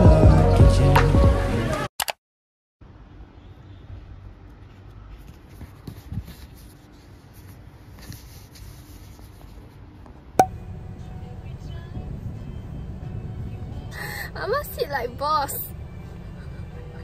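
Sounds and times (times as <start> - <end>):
faint scratching and rubbing: 4.6 - 10.0.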